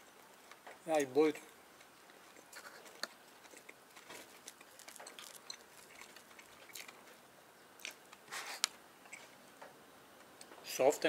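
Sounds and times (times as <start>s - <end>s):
pastry crunching being chewed: 1.8s - 7.2s.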